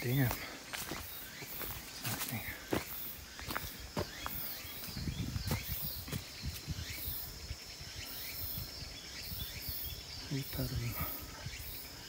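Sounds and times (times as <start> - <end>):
footsteps on leafy dirt path: 0.0 - 7.0
insects chirping: 0.0 - 12.0.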